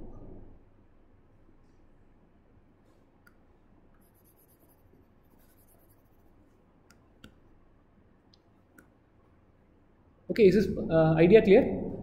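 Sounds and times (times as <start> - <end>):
soft scratching: 4.0 - 6.6.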